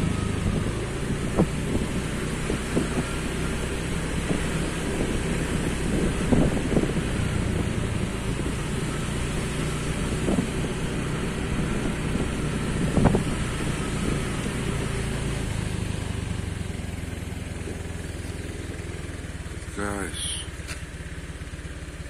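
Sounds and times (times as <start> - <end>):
wind gusts on microphone: 0.0 - 3.1, 4.1 - 8.6, 11.5 - 14.5
motorcycle engine running: 0.0 - 22.0.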